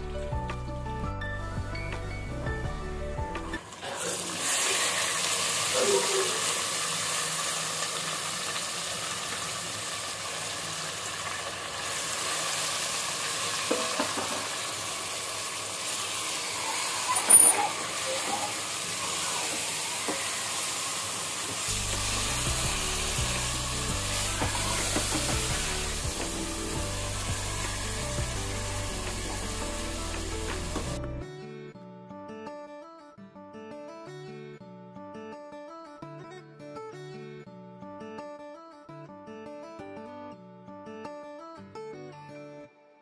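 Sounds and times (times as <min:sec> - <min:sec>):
soft background music: 0:00.0 - 0:03.8, 0:21.4 - 0:33.8
meat sizzling in hot oil: 0:03.7 - 0:31.0
spatula scraping a pot: 0:16.2 - 0:20.8.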